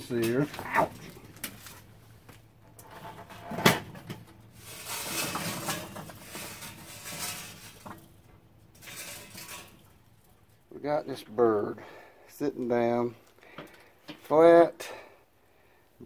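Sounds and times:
charcoal clattering and sliding: 0:00.0 - 0:10.6.

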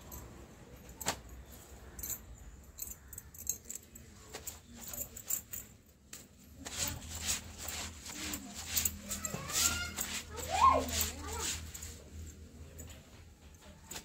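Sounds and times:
brush scrubbing wet clothes: 0:06.7 - 0:12.0.

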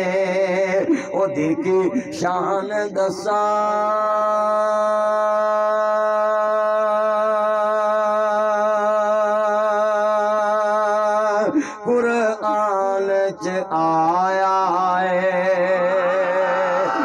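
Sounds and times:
man singing into a microphone: 0:00.0 - 0:17.0.

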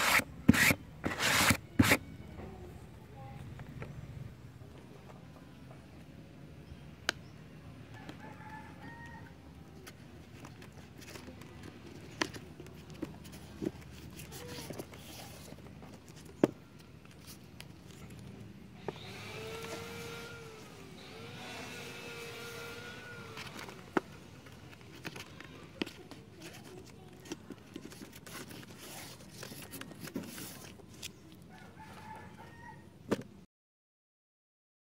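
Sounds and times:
rooster crowing: 0:07.9 - 0:09.4, 0:31.5 - 0:32.9.

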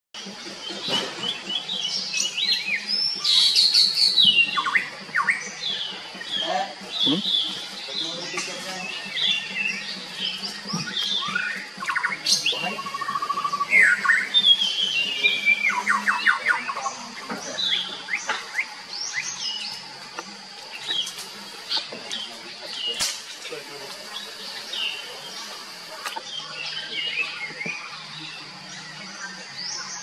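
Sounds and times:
songbirds singing and calling: 0:00.2 - 0:30.0
steady high-pitched tone: 0:00.2 - 0:30.0.

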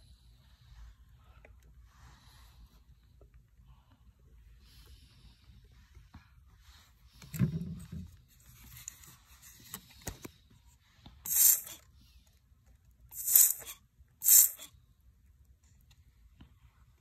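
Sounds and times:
spray bottle hissing mist: 0:11.3 - 0:11.8, 0:13.1 - 0:14.7.

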